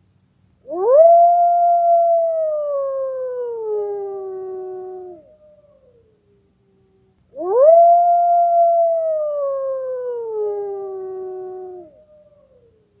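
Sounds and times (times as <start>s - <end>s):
wolf howling: 7.4s - 12.8s.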